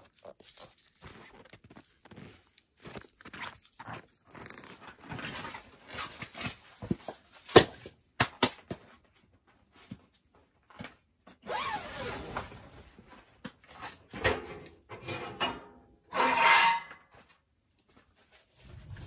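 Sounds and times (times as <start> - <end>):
scraping and clunks of steel stove: 14.1 - 17.1.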